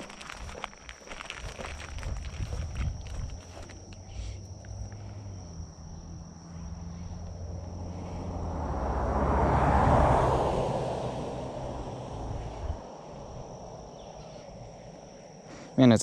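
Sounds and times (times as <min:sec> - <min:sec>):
insects droning: 0:00.0 - 0:16.0
car passing: 0:04.2 - 0:15.3.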